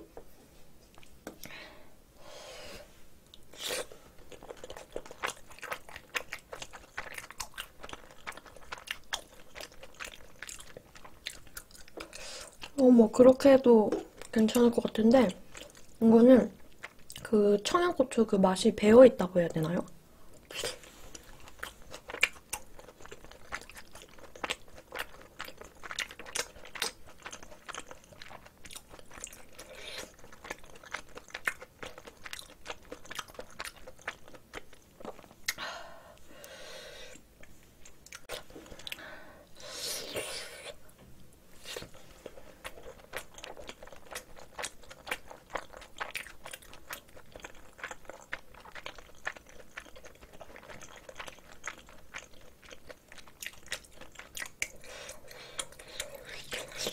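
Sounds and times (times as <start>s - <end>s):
chewing mouth sounds: 3.3s - 12.8s, 20.4s - 35.6s, 41.6s - 56.9s.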